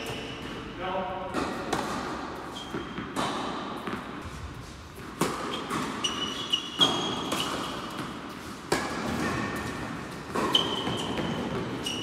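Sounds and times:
shoe squeaks: 0.0s - 0.5s, 2.4s - 3.1s, 5.4s - 8.0s, 10.4s - 12.0s.

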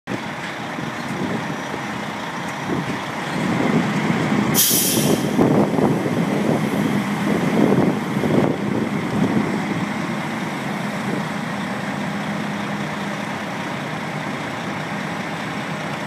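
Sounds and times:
truck engine under load: 0.1s - 16.0s
sharp hiss of air: 4.6s - 5.5s.

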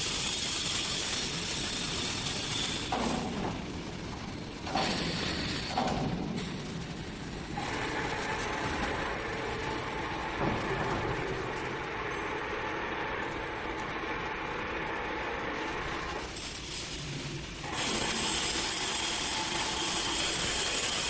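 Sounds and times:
machine clattering: 0.0s - 14.9s
machine knock: 4.6s - 6.5s, 7.6s - 11.8s
faint hum: 6.0s - 17.7s.

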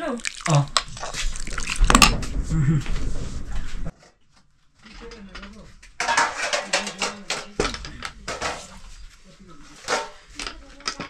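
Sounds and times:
metal utensils clattering on pots: 4.9s - 9.0s, 9.6s - 11.0s.

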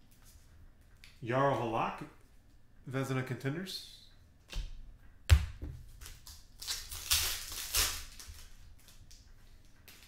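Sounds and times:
foil wrapper crinkling: 6.0s - 10.0s.

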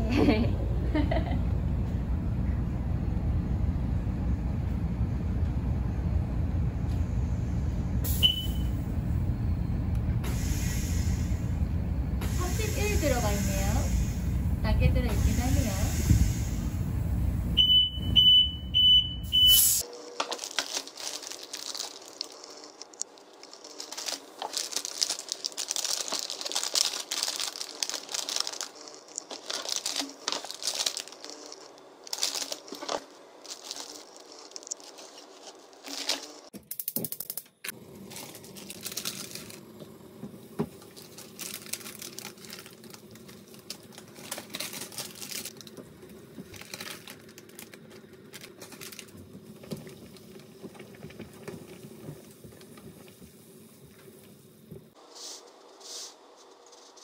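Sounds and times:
plastic bags crinkling: 20.2s - 36.5s, 38.0s - 39.8s, 40.7s - 52.8s.

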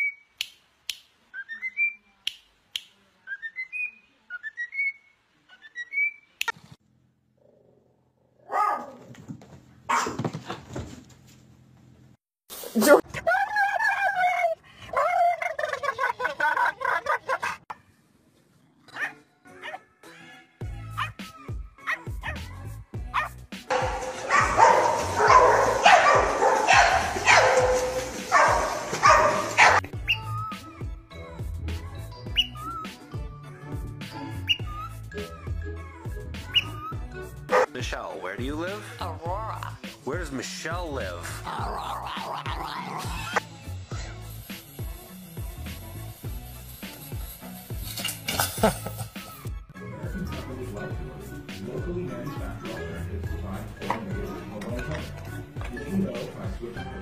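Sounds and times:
cockatiel whistling: 5.6s - 6.2s, 30.0s - 30.4s, 32.3s - 32.8s, 34.5s - 35.0s, 36.5s - 36.9s
dog barking and yelping: 8.4s - 9.1s, 9.9s - 10.2s, 18.9s - 19.9s, 21.8s - 22.5s, 23.1s - 30.2s, 37.5s - 37.7s.

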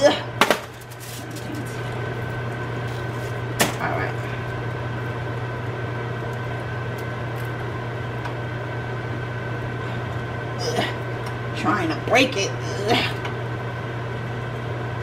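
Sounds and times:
appliance electrical hum: 0.0s - 15.0s
foil rustle: 0.6s - 1.9s.

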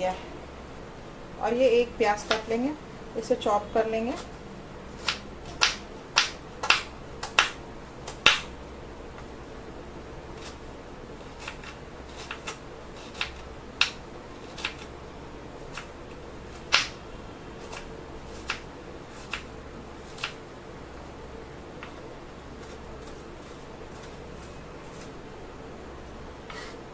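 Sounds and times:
faint steady hum: 0.0s - 26.9s
knife chopping on wooden board: 2.2s - 2.5s, 5.0s - 8.5s.

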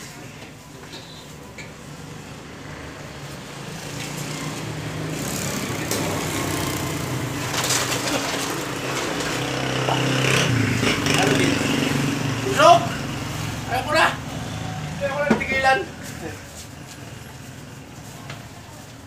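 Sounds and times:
small motorcycle engine: 3.7s - 15.0s.

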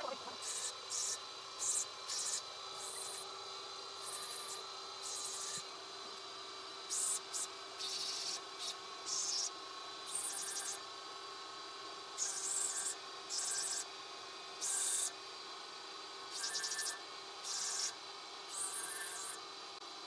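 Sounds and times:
grinding wheel motor hum: 0.0s - 7.3s.

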